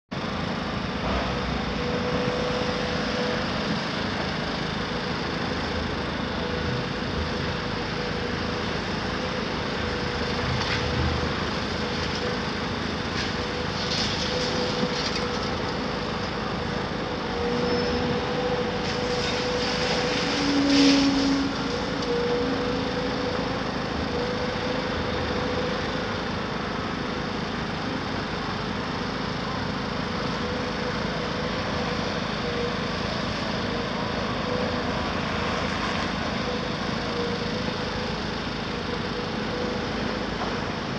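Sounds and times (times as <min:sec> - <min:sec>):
excavator running with hydraulic whine: 0:00.1 - 0:40.9
demolition debris clattering: 0:13.0 - 0:16.3.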